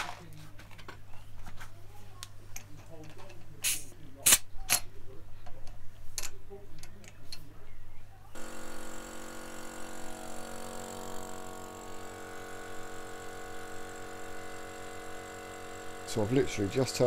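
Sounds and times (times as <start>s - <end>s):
electric air compressor running: 8.4s - 17.0s.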